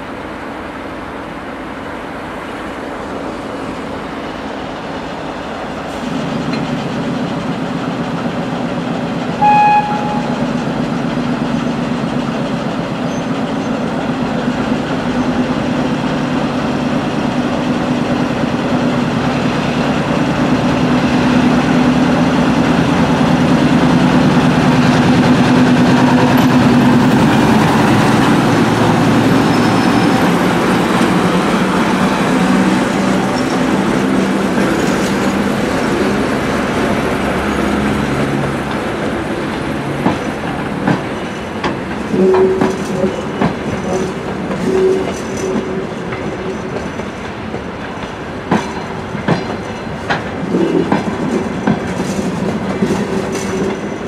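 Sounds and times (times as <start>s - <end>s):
diesel locomotive engine drone: 0.0s - 54.0s
locomotive horn blast: 9.4s - 10.5s, 42.1s - 43.3s.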